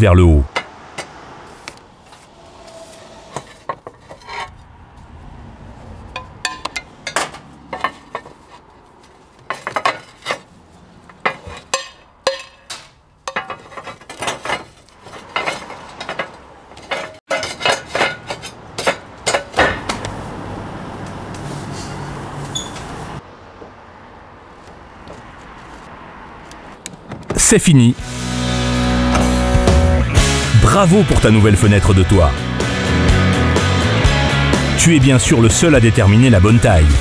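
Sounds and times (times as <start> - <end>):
clay roof tiles clinking: 3.2 - 4.6, 6.2 - 20.1.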